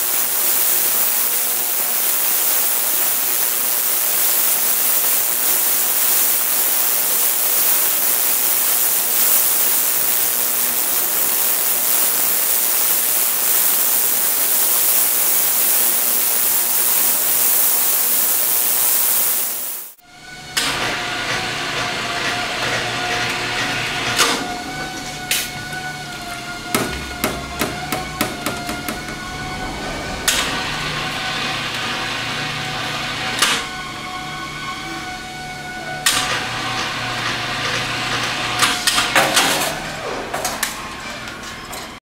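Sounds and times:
ultrasonic cleaner hissing: 0.0s - 40.7s
steady machine hum: 19.6s - 38.7s.

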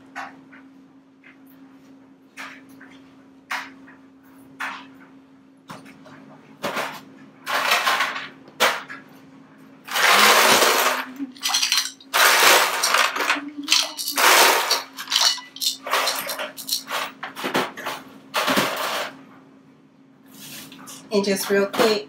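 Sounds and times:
ice cubes splashing into water: 9.9s - 16.9s.

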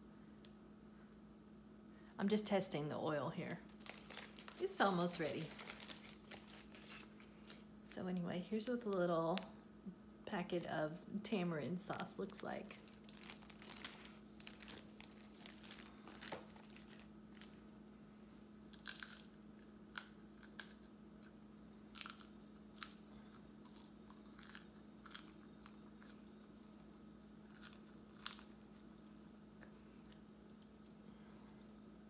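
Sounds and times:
low steady hum: 0.0s - 32.0s
oil crackling and popping: 3.7s - 7.1s, 12.3s - 17.7s, 18.5s - 29.0s.

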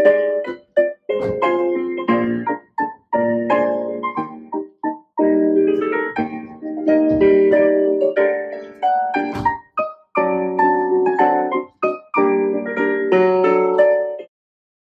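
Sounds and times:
solo piano chords: 0.0s - 14.3s
short thump: 1.2s - 1.7s, 5.8s - 7.7s, 9.2s - 9.7s.

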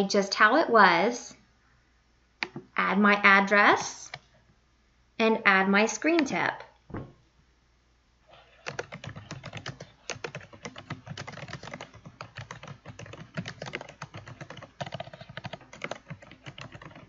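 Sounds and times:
fast keyboard typing: 8.4s - 17.0s.

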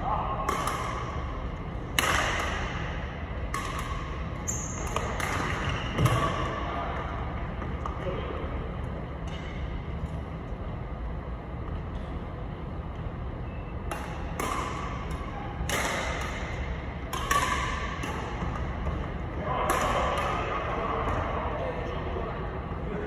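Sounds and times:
badminton racket hitting shuttlecock: 2.0s - 6.2s, 13.9s - 19.0s.

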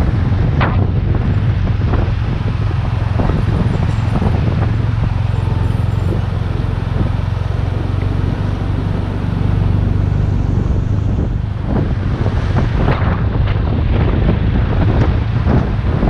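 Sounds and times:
motorcycle engine cruising: 0.0s - 16.0s
wind noise on microphone: 0.0s - 16.0s.

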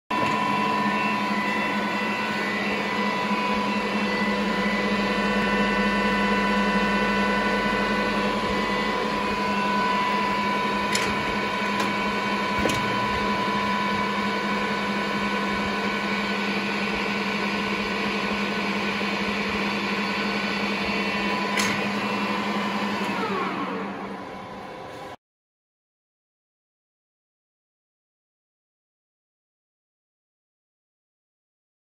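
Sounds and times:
lathe gearing whine: 0.1s - 25.2s.

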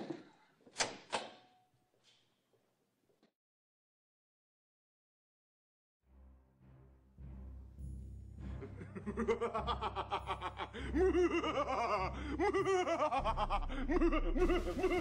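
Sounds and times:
man laughing: 8.6s - 15.0s.

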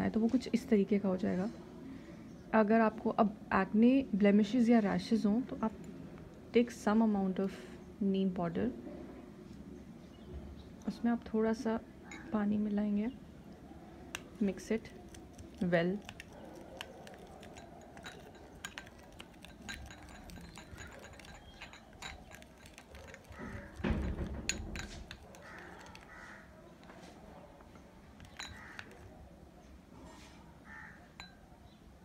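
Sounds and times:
fingers tapping a dish: 15.1s - 26.1s.

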